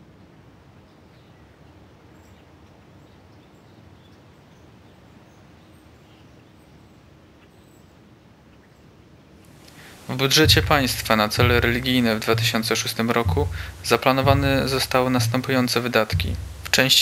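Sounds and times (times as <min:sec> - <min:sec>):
steady background hiss: 0:00.0 - 0:17.0
distant bird chirps: 0:09.5 - 0:17.0.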